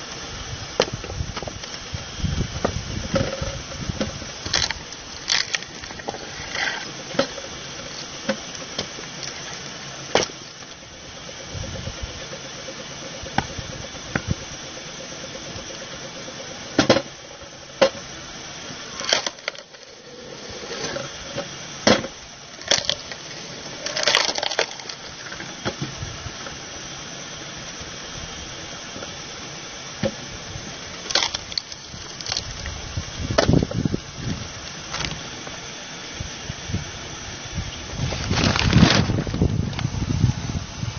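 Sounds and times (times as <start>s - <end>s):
log splitter running: 0.0s - 40.9s
wood splitting cracks: 4.4s - 7.4s, 18.9s - 19.8s, 21.8s - 25.8s, 31.0s - 32.7s.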